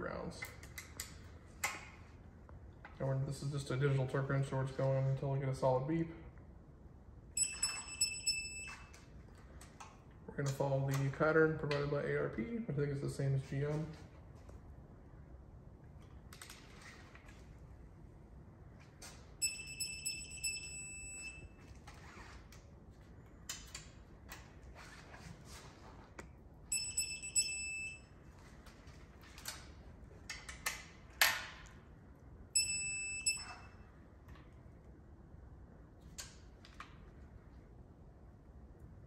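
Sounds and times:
torque wrench beeping: 7.4s - 9.0s, 19.4s - 21.4s, 26.7s - 28.0s, 32.6s - 33.8s.

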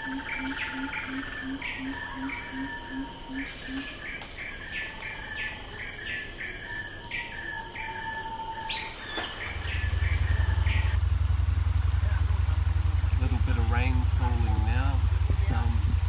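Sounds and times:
loud rising bird call: 0.0s - 11.0s
insects droning: 0.0s - 16.0s
low pulsing boat engine: 0.0s - 16.0s.

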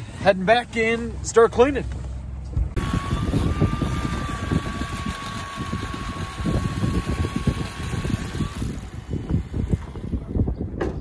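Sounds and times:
wind buffeting microphone: 2.6s - 11.0s.

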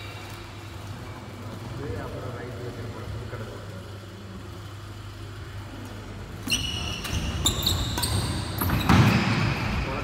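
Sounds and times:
steady low hum: 0.0s - 10.0s
shoes squeaking on wooden court: 6.4s - 9.9s.

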